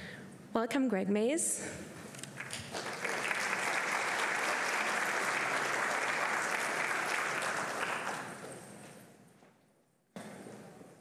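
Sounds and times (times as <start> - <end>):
audience applauding: 2.2 - 8.8.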